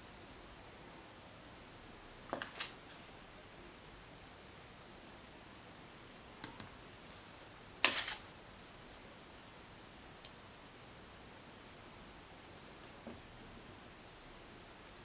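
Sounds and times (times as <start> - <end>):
wooden sticks clicking and tapping: 6.0 - 6.8.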